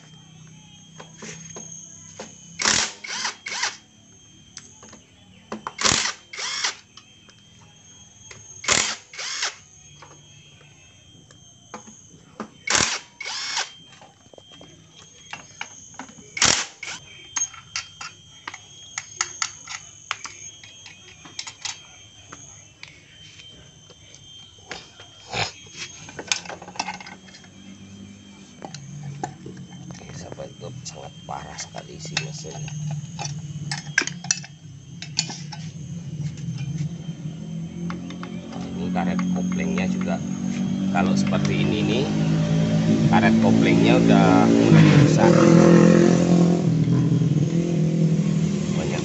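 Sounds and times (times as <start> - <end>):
cordless power driver spinning: 2.4 - 3.8, 5.8 - 6.8, 8.6 - 9.6, 12.7 - 13.7.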